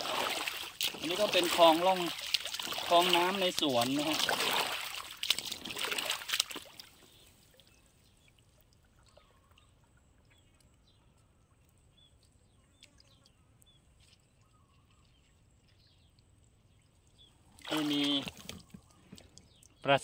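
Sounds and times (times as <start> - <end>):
boots sloshing through shallow water: 0.0 - 8.2, 17.3 - 19.7.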